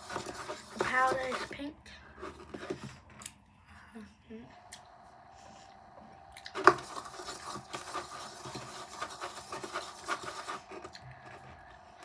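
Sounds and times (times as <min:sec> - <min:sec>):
rubbing and rustling handling noise: 0:00.0 - 0:03.1, 0:06.6 - 0:12.0.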